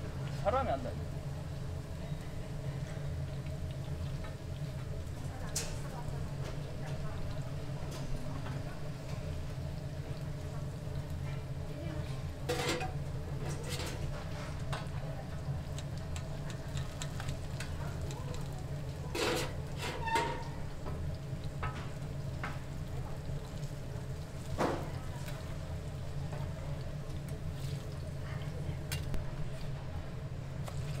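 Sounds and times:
pancakes sizzling on griddle: 1.1 - 29.7
metal spatulas scraping griddle: 12.5 - 14.0, 19.1 - 20.4.

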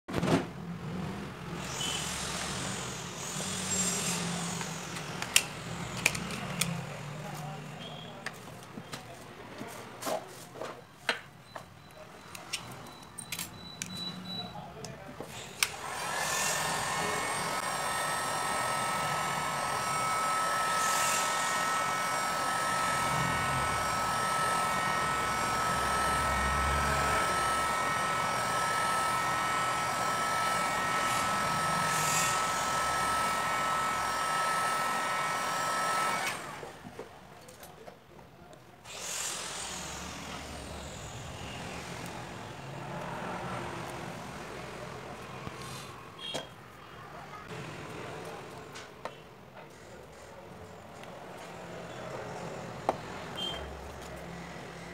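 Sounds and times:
heat gun whining fan: 1.5 - 7.0, 15.3 - 36.8, 38.9 - 44.5.

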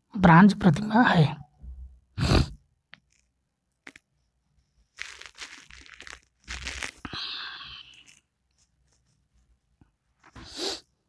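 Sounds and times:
rustling and crinkling: 3.0 - 10.6.

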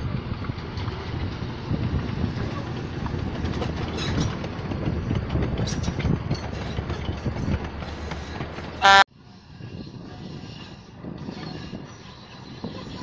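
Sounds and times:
train wagons rumbling and clanking: 0.0 - 13.0
train horn toot: 8.8 - 9.1.

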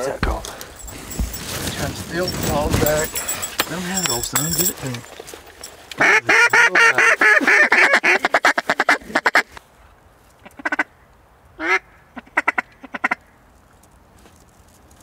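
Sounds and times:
duck call quacks: 6.0 - 9.6, 10.4 - 10.9, 11.6 - 13.2.

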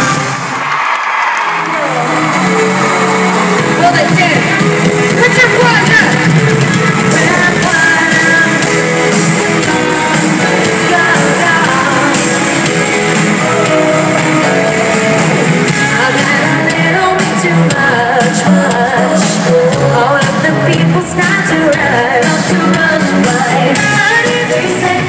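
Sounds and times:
live pop concert music: 0.0 - 25.0.

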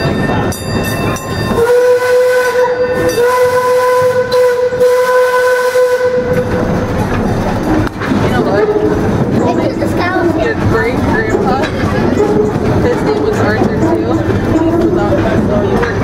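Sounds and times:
train running rumble: 0.0 - 16.0
steam locomotive whistle: 1.5 - 6.7.

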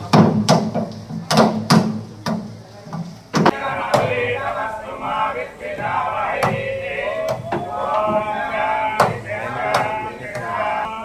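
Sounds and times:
group chanting: 3.4 - 11.0.

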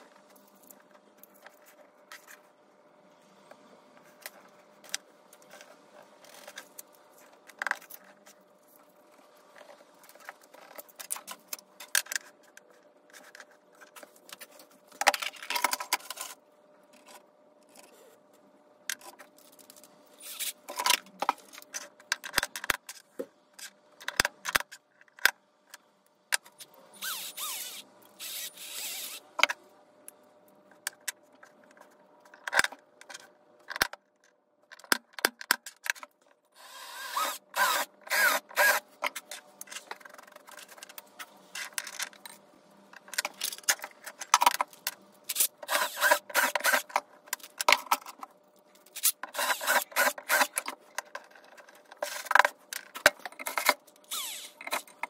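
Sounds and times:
cordless drill boring into wood: 27.0 - 29.2, 36.6 - 38.8, 45.7 - 46.8, 49.3 - 50.5, 54.1 - 54.6
tools clicking and scraping on wood: 30.7 - 55.0.

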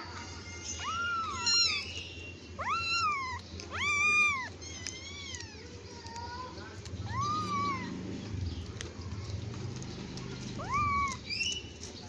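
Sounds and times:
kitten meowing: 0.7 - 2.0, 2.6 - 6.2, 7.0 - 8.0, 10.6 - 11.2.

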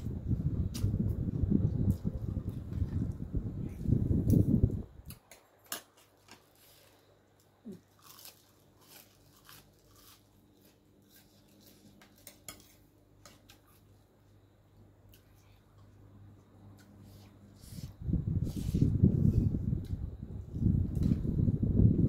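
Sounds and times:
short food crunches: 5.1 - 12.6.

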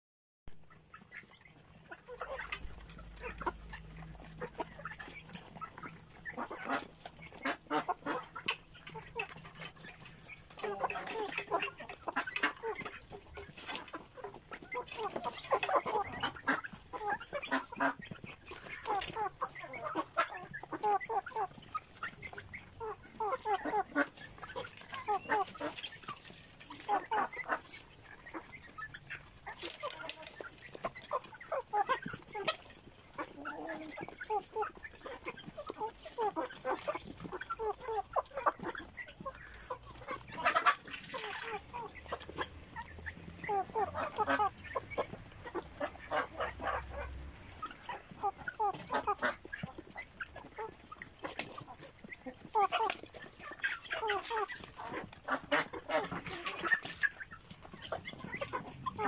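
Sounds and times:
chickens clucking: 0.5 - 59.0.

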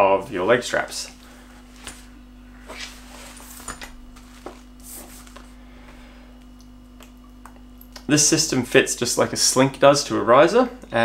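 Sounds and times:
faint hum: 0.0 - 11.0
nylon fabric rustling: 1.6 - 5.6.

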